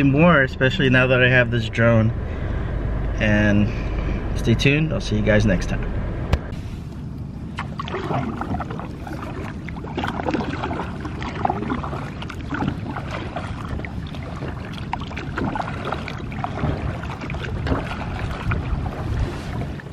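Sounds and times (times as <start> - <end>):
water splashing against kayak hull: 7.5 - 19.9.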